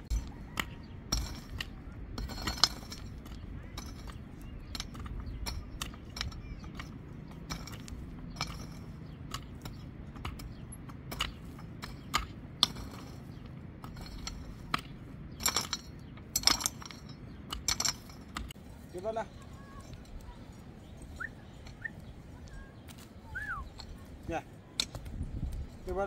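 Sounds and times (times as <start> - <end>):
metallic clinks: 0.0 - 18.6
shovel scraping dirt: 0.0 - 18.6.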